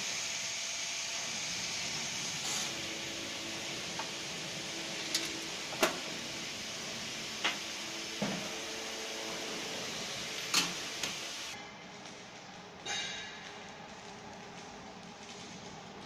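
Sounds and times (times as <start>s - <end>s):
workshop background noise: 1.1s - 14.5s
sharp metal clanks: 12.8s - 13.4s.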